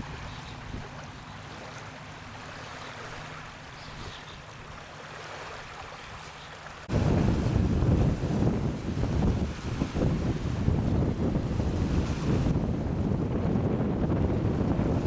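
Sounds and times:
small waves lapping on stony shore: 0.0s - 10.5s.

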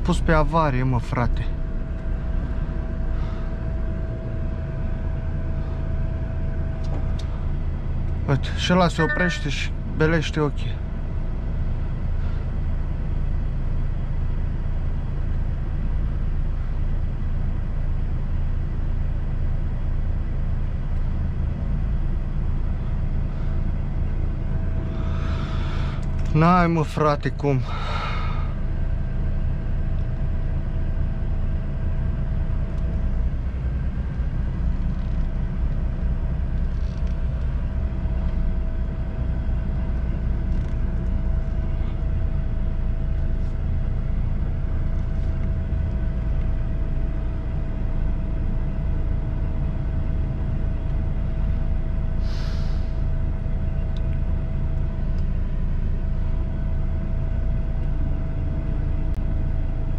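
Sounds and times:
truck diesel engine rumbling: 0.0s - 59.9s
air brake hiss: 52.2s - 53.1s.

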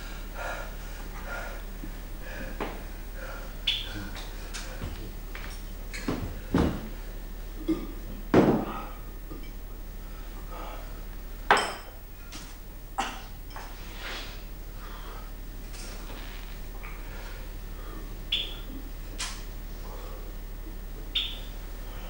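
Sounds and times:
low mains hum: 0.0s - 22.0s
tableware knocking and clinking: 11.5s - 12.0s.

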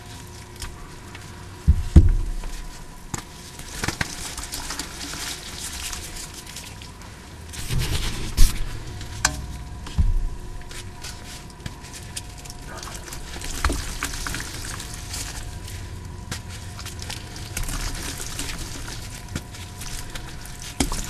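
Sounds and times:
wet chalk crackling and squishing: 0.0s - 21.0s
heavy thuds: 1.7s - 2.6s, 7.6s - 11.9s.

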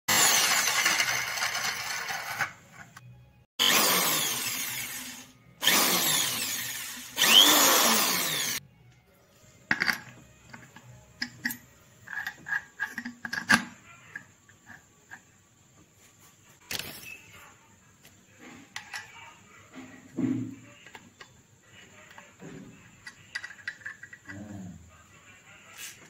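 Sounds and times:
electric drill with cutting disc: 0.1s - 2.5s, 3.6s - 8.6s.

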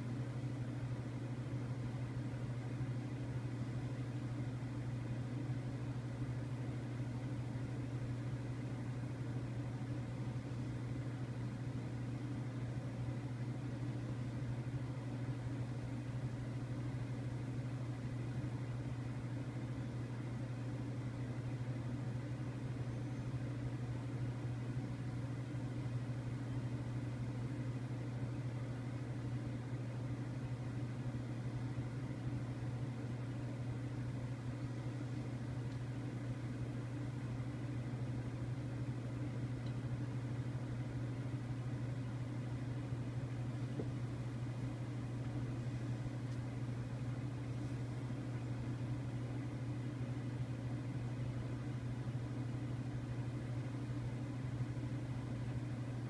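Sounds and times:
low mechanical hum: 0.0s - 56.0s.

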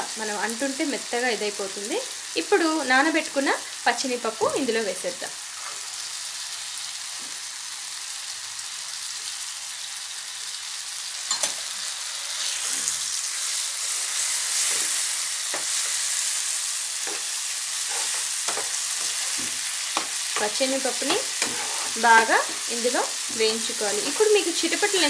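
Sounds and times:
lentils sizzling in hot oil: 0.0s - 25.0s
steel spoon scraping a pan: 13.7s - 16.4s, 17.0s - 25.0s.

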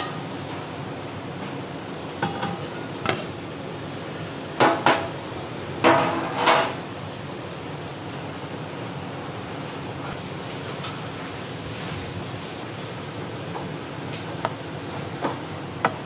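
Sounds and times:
metal kitchenware clanking: 2.2s - 3.3s.

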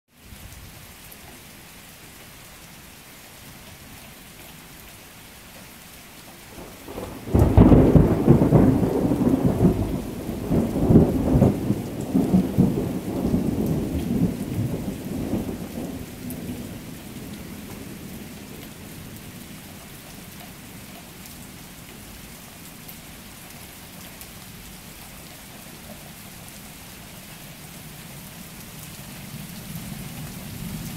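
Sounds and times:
rain falling: 0.1s - 30.9s
thunder rumbling: 6.5s - 19.3s.

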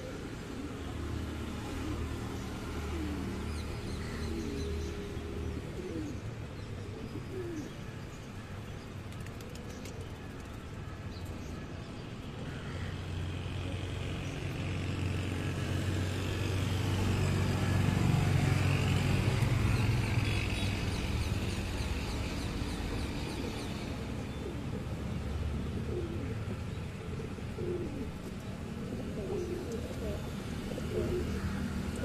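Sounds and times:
pigeons cooing: 0.0s - 7.8s, 22.0s - 32.0s
low rumble of city traffic: 0.0s - 32.0s.

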